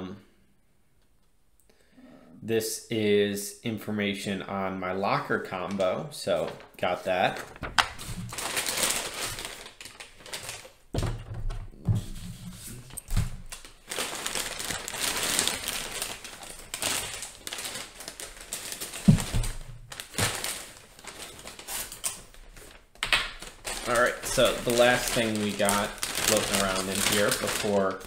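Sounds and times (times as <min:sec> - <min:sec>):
plastic bag rustling: 0:06.3 - 0:28.0.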